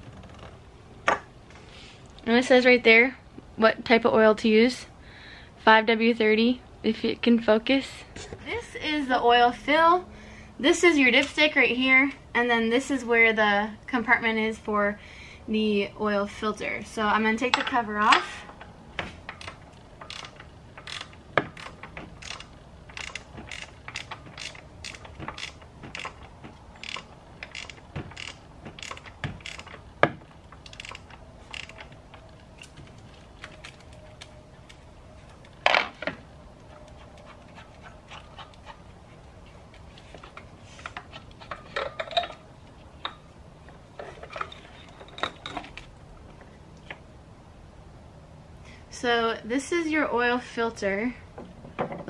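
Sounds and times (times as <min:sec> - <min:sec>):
socket ratchet clicking: 0:19.3 - 0:32.8
tools clattering: 0:40.2 - 0:43.2, 0:43.9 - 0:45.9.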